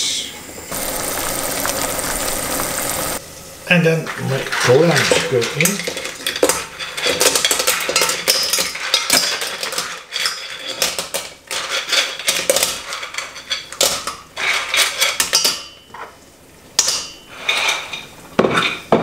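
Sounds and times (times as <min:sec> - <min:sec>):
clam shells clattering into pot: 0:04.5 - 0:15.7.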